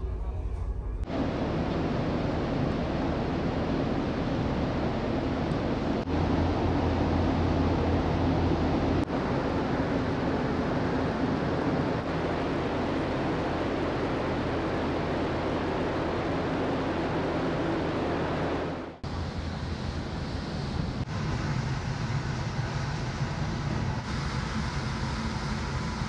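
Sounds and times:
low hum: 0:00.0 - 0:26.0
ferry wind and sea rushing: 0:00.9 - 0:26.0.

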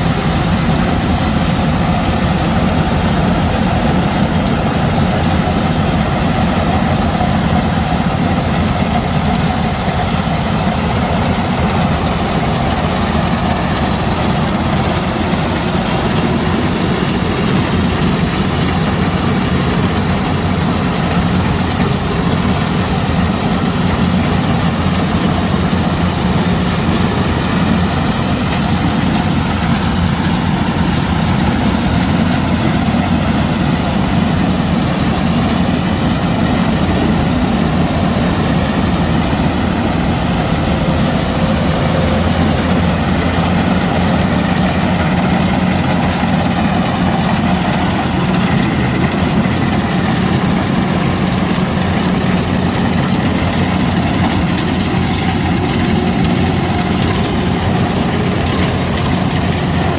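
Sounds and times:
combine harvester engine running: 0:00.0 - 0:59.9.

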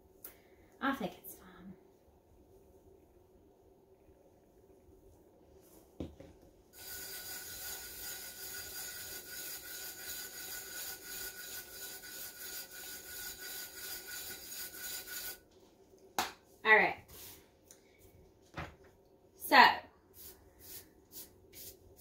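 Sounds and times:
palm rubbing glitter on vinyl: 0:06.8 - 0:15.4, 0:20.2 - 0:22.0.

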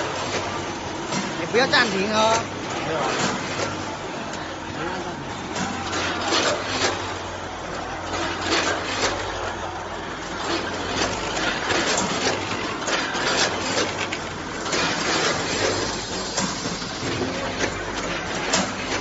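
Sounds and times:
low machine hum: 0:00.0 - 0:19.0
snack clattering through metal pans: 0:05.5 - 0:19.0.

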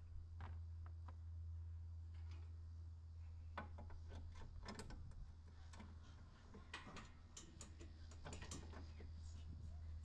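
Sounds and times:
steady low hum: 0:00.0 - 0:10.0.

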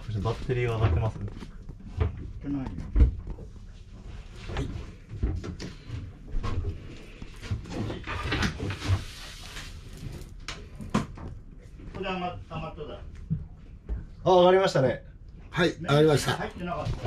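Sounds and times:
rustling: 0:00.0 - 0:12.5.

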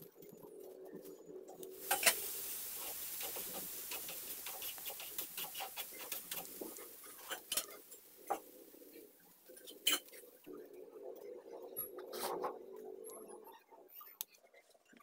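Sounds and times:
faint hiss: 0:00.8 - 0:10.5.

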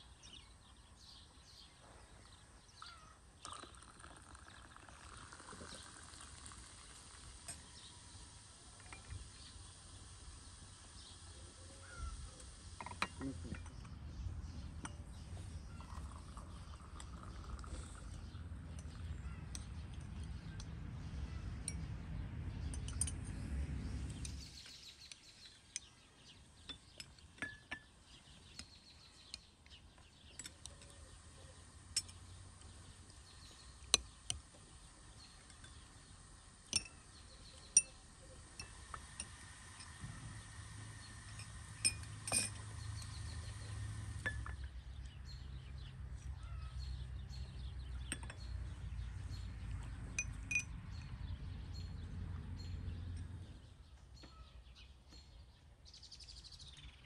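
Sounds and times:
teaspoons clinking against glass: 0:41.4 - 0:43.2.

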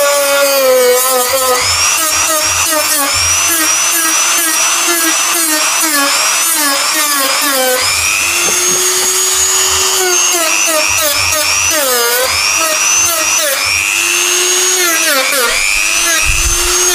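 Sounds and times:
rotary tool grinding plastic: 0:00.0 - 0:16.9.

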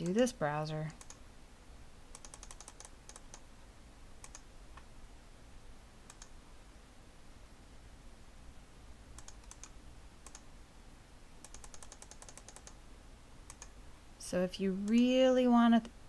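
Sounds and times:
computer mouse clicks: 0:00.9 - 0:01.2, 0:02.1 - 0:03.4, 0:04.2 - 0:04.9, 0:06.0 - 0:06.4, 0:09.2 - 0:10.5, 0:11.4 - 0:12.8, 0:13.5 - 0:13.8
keyboard typing: 0:00.9 - 0:01.2, 0:02.1 - 0:03.4, 0:04.2 - 0:04.5, 0:06.1 - 0:06.4, 0:09.2 - 0:10.5, 0:11.4 - 0:12.8, 0:13.5 - 0:13.8.

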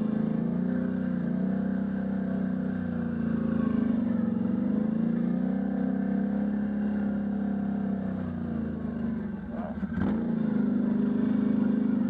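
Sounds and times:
atv engine running: 0:00.0 - 0:12.0.

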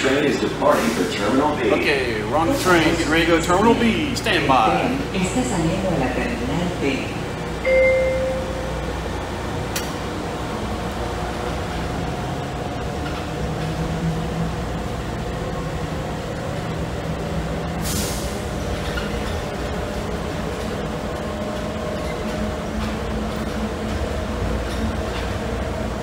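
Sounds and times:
train rolling rumble: 0:00.0 - 0:26.0
short loud tone: 0:07.6 - 0:08.8
air hiss: 0:17.8 - 0:18.5.

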